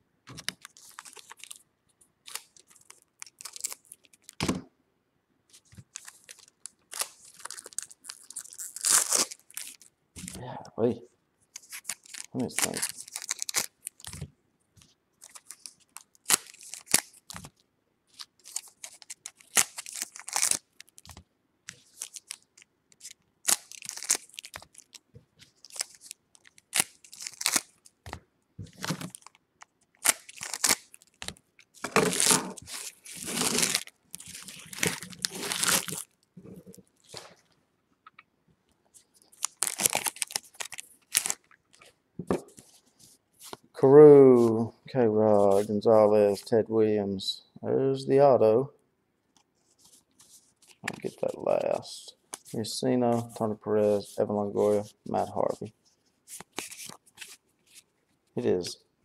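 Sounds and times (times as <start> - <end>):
wrappers tearing and crinkling: 0.4 - 1.6, 2.2 - 4.4, 5.9 - 10.4, 11.6 - 14.2, 15.2 - 28.0, 28.7 - 37.5, 39.2 - 41.8, 56.3 - 57.9.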